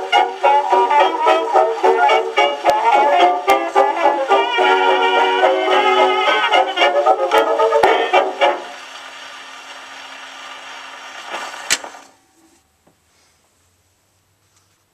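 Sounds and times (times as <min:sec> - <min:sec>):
dance-band record music: 0:00.0 - 0:09.2
scratchy record surface hiss: 0:00.0 - 0:12.7.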